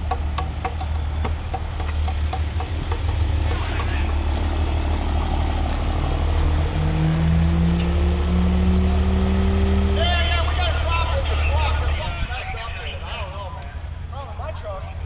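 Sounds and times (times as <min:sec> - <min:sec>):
diesel engine rumbling: 0:00.0 - 0:15.0
rising pitched tone: 0:03.3 - 0:10.3.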